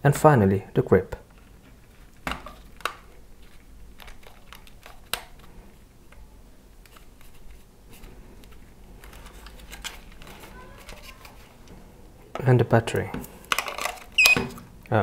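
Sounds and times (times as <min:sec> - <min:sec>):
rubber grip rubbing: 0:01.2 - 0:12.5.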